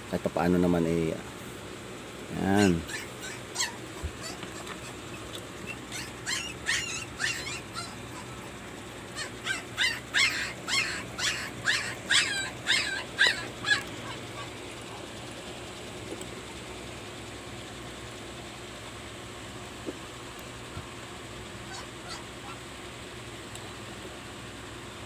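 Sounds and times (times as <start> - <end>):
animal's short high cries: 2.6 - 5.0, 5.6 - 8.5, 21.7 - 22.6.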